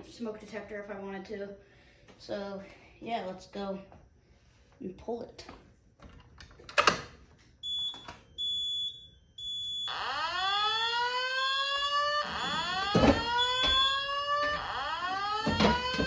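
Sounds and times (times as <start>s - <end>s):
short high alarm beeps: 7.6s - 10.3s, 12.3s - 14.1s
rising sweep alarm tone: 7.6s - 16.0s.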